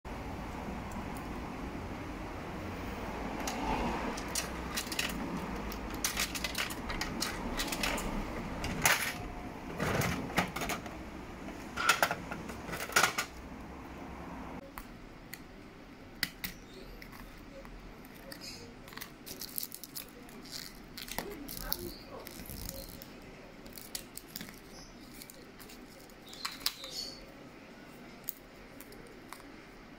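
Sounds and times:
plastic being handled: 4.2s - 10.9s, 16.6s - 27.2s.

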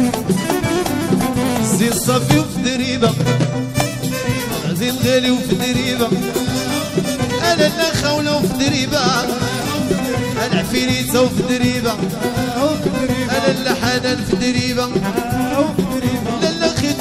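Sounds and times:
fast percussion beat: 0.0s - 17.0s
wavering melody: 1.0s - 5.1s.

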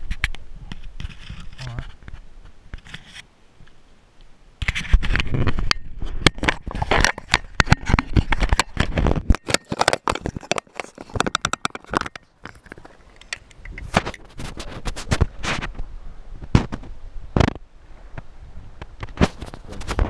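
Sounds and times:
hand scraping and rubbing microphone: 0.0s - 3.3s, 4.6s - 20.0s
sharp clicks: 7.3s - 14.3s.

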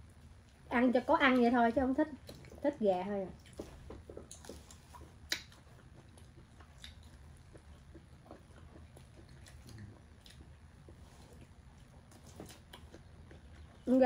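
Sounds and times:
close-up chewing: 0.0s - 14.0s
wet mouth clicks: 4.2s - 10.5s.

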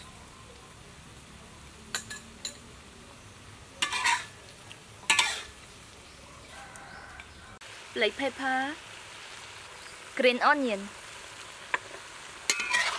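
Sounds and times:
spoon clinking on metal pan: 1.9s - 2.7s, 3.8s - 4.4s, 5.1s - 5.5s, 12.5s - 12.9s.

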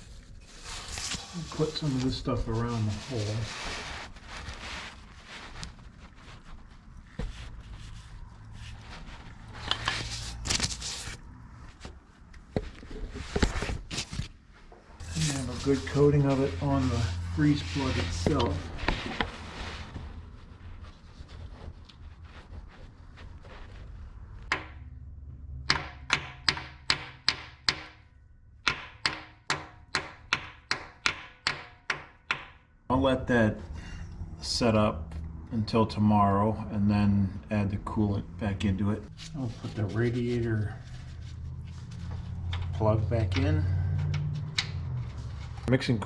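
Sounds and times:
scraping and rustling: 0.0s - 24.5s, 39.0s - 45.8s
hammer tapping on metal: 25.6s - 28.0s
sharp knocks on metal: 25.6s - 28.0s, 28.7s - 32.6s.

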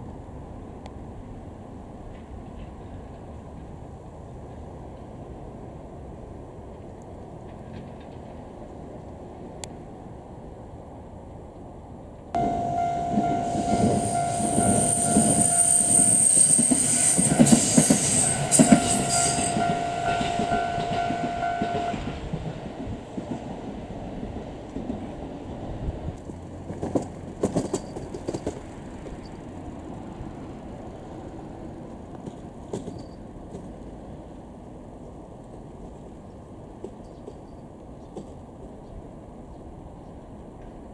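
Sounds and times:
crossing bell ringing tone: 12.4s - 22.3s
train wheels clattering: 12.4s - 23.6s, 26.2s - 29.5s, 32.2s - 33.8s.

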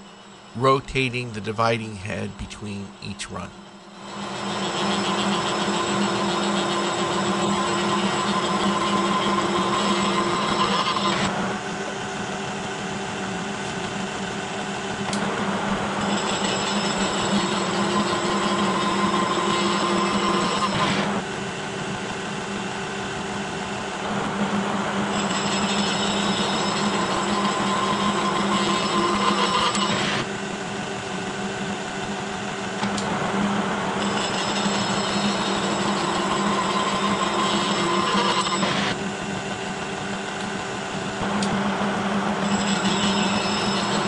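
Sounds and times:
milling machine hum: 0.0s - 44.0s
high-pitched whine: 34.0s - 39.0s.

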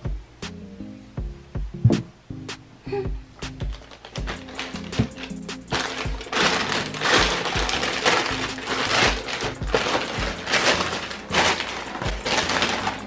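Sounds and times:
background music with steady beat: 0.0s - 13.0s
plastic mailer bag tearing and rustling: 3.7s - 13.0s.

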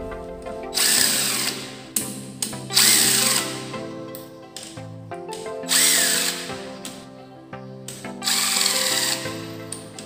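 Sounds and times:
background music: 0.0s - 10.0s
cordless drill spinning bolts: 2.7s - 3.6s, 5.7s - 6.5s, 8.2s - 9.4s.

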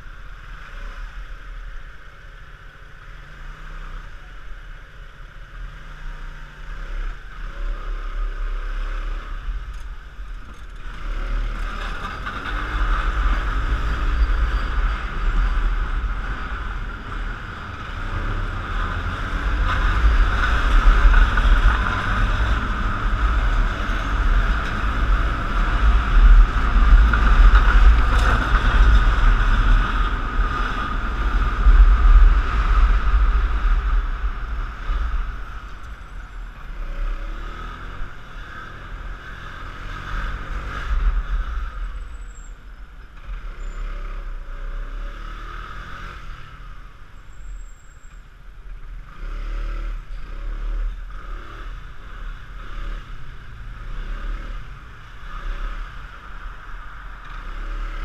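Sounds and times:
wind rumble on microphone: 7.0s - 44.4s.

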